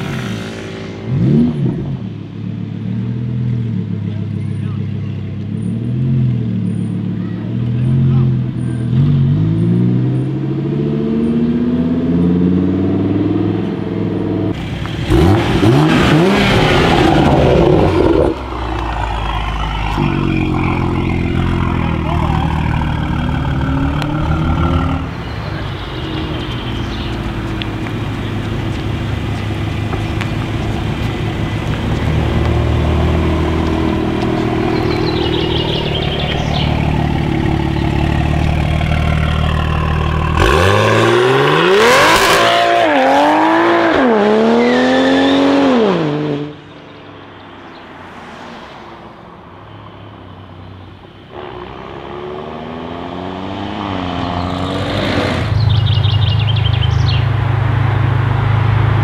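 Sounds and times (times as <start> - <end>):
car engine with loud exhaust: 0.0 - 59.0
car tyres wheelspinning: 14.6 - 25.4.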